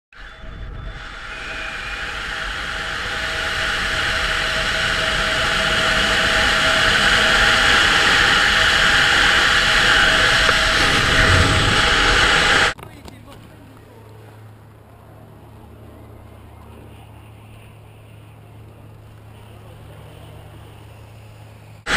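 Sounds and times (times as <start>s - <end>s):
faint steady whistle: 0.1s - 12.5s
wind rushing over microphone: 0.2s - 12.8s.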